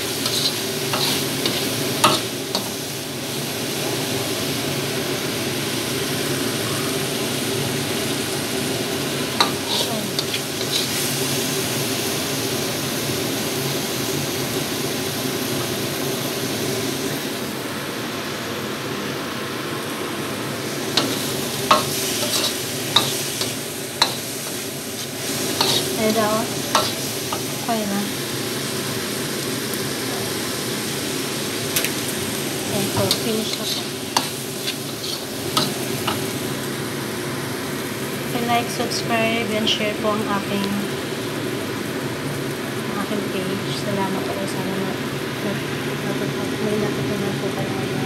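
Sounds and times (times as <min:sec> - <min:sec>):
spatula scraping a wok: 0:00.0 - 0:02.9, 0:09.4 - 0:11.5, 0:20.8 - 0:27.6, 0:32.8 - 0:36.4
food sizzling in a wok: 0:00.0 - 0:48.0.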